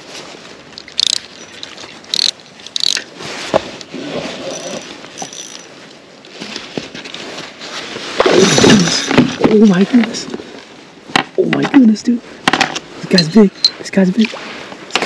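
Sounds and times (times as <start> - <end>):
fishing reel ratcheting and whirring: 0.9 - 3.0, 4.5 - 5.7.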